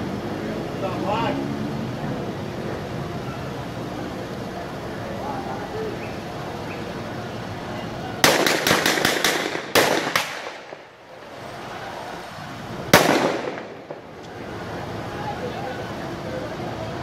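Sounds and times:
gunshots echoing: 0:08.2 - 0:10.9, 0:12.9 - 0:14.1.

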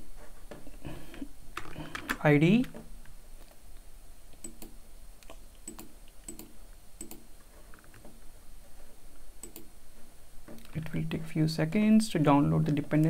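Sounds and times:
mouse and keyboard clicks: 0:04.4 - 0:08.2, 0:09.4 - 0:09.7.

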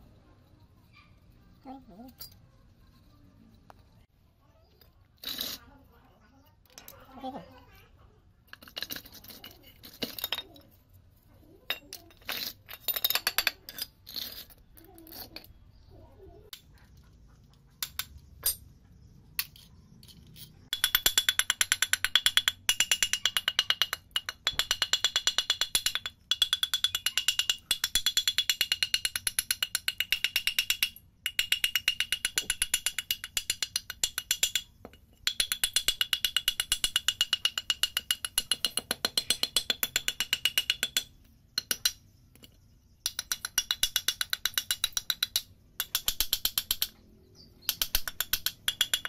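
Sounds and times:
hammer tapping metal housing: 0:20.7 - 0:47.0, 0:47.6 - 0:49.0.

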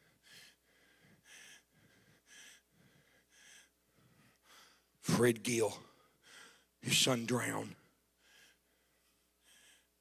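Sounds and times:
man breathing into a microphone: 0:00.0 - 0:05.0, 0:05.9 - 0:06.8.

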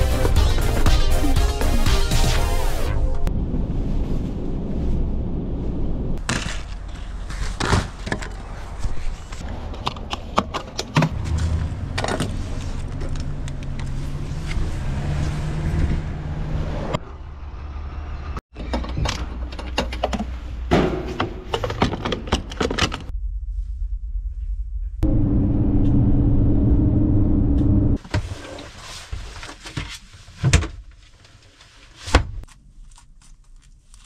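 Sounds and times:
van engine rumbling: 0:03.1 - 0:19.6, 0:24.0 - 0:28.0
knocks and rattles: 0:18.5 - 0:23.1.

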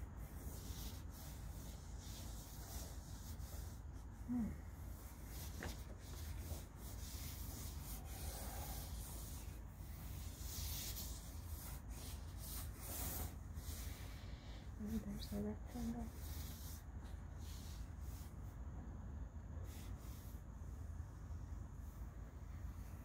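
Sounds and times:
drawing stick scraping paper: 0:00.2 - 0:14.2.

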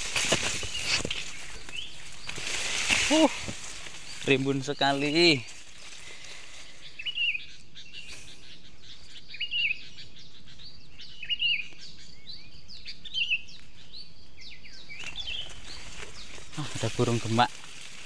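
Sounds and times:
faint chirps of other birds: 0:00.0 - 0:18.0
bird chirping phrase: 0:04.0 - 0:05.5.

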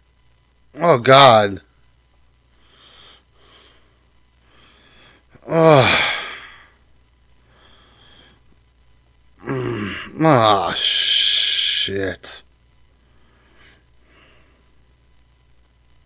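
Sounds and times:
man sighing: 0:04.6 - 0:06.8, 0:09.4 - 0:12.0.

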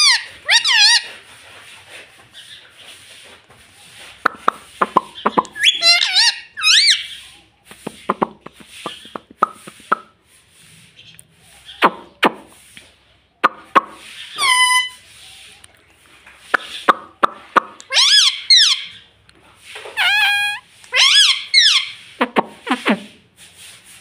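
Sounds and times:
parakeet whistled calls: 0:00.0 - 0:01.1, 0:05.5 - 0:07.2, 0:14.2 - 0:15.0, 0:17.9 - 0:19.0, 0:20.0 - 0:22.0.

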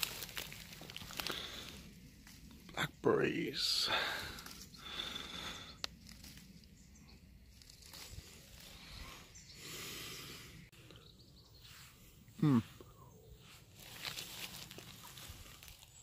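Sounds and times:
leaves and stems rustling: 0:00.0 - 0:02.9, 0:03.5 - 0:09.3, 0:13.4 - 0:16.0.

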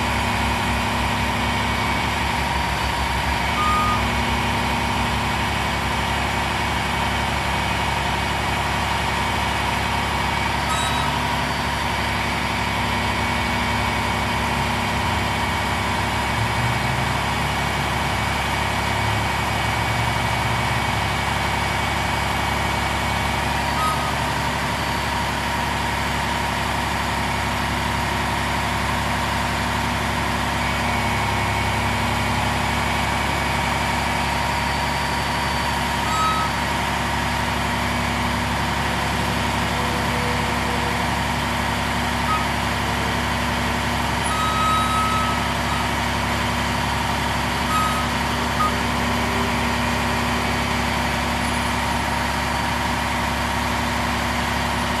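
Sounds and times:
diesel truck engine running: 0:00.0 - 0:55.0
short high chirps: 0:10.7 - 0:11.2.

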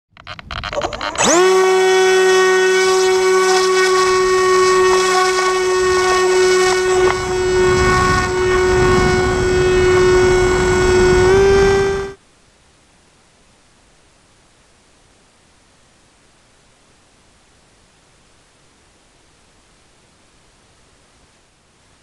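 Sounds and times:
electric motor and propeller whine: 0:00.7 - 0:12.2
wind noise: 0:04.0 - 0:12.2.

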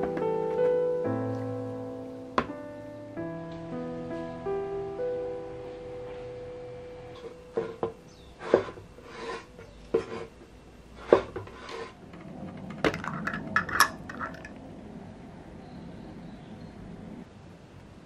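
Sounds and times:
dishes knocking and clinking: 0:11.1 - 0:14.6.

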